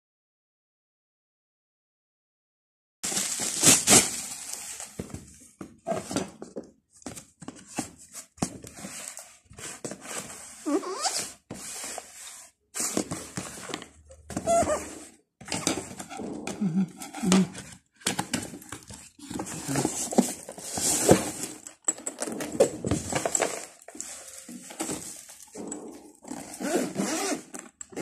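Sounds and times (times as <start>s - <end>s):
cardboard box being handled: 18.2s - 21.6s.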